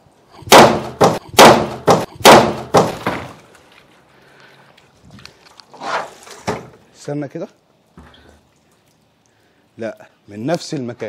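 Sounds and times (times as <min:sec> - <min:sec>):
bat striking plastic jug: 0:00.6 - 0:03.4.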